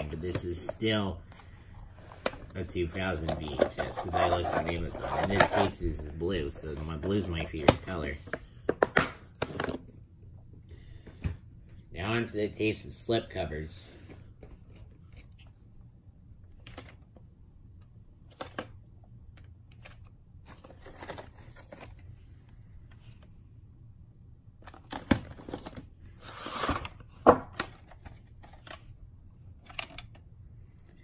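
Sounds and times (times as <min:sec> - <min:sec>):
cassette scraping out of sleeve: 0:03.1 - 0:05.9.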